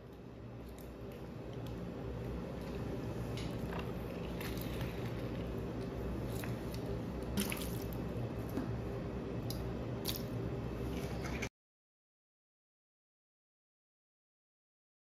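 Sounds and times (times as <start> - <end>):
steady low hum: 0.0 - 11.5.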